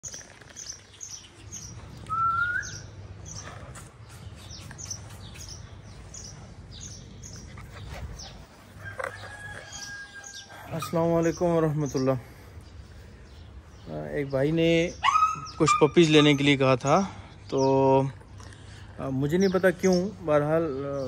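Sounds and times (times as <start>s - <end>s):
small bird chirping: 0.0s - 16.5s.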